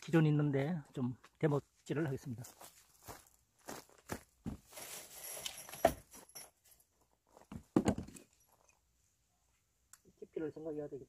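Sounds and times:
rustling: 0:04.5 - 0:07.6
wooden boards knocking and clattering: 0:07.5 - 0:08.2.

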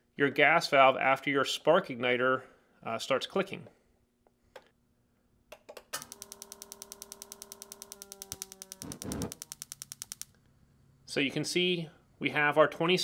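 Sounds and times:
ignition sparks snapping: 0:05.9 - 0:10.3
gas burner lighting whoosh: 0:06.0 - 0:10.2
steady hum: 0:06.0 - 0:10.3.

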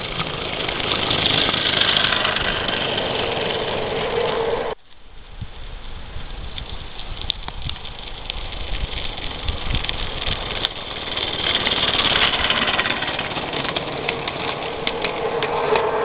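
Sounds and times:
steam locomotive hissing exhaust: 0:14.4 - 0:16.0.

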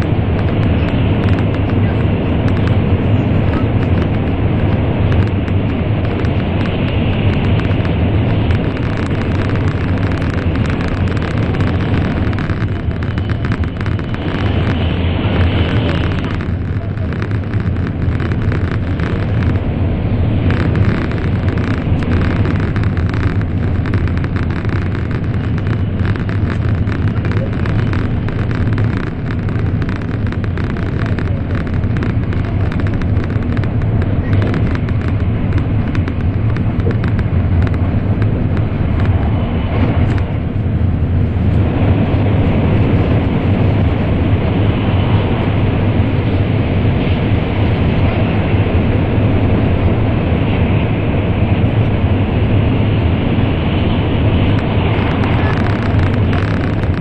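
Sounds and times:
train cabin rumble: 0:00.0 - 0:41.8, 0:54.3 - 0:57.0.

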